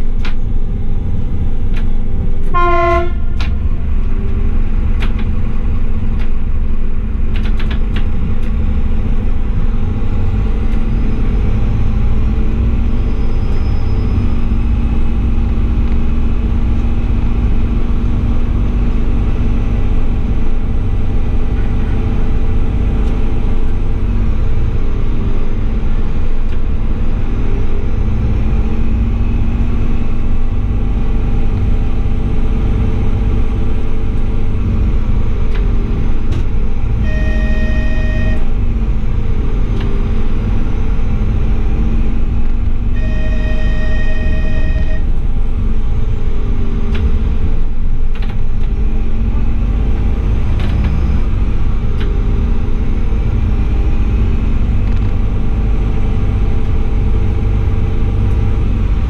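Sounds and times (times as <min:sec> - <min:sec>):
railcar wheels rumbling: 0:00.0 - 0:59.0
train horn toot: 0:02.5 - 0:03.5, 0:37.0 - 0:38.5, 0:42.9 - 0:45.1
sharp clicks: 0:07.3 - 0:08.6.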